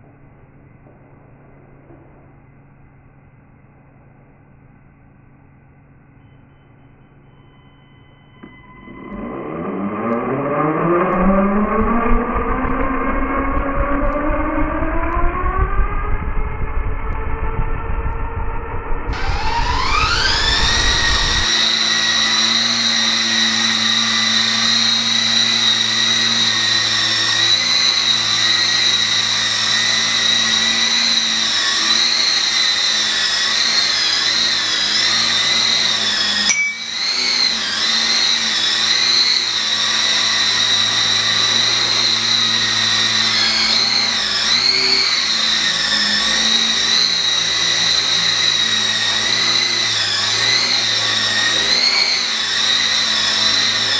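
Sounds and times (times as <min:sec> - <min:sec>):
model helicopter motor whine: 0:07.2 - 0:53.9.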